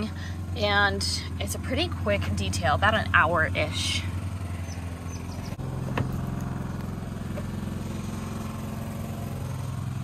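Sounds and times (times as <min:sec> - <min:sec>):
air compressor humming: 0:04.0 - 0:10.0.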